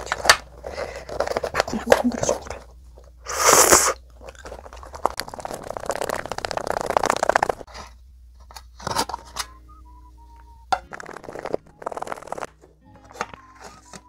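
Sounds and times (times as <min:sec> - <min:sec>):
food rattling in metal tin: 0:10.8 - 0:12.5.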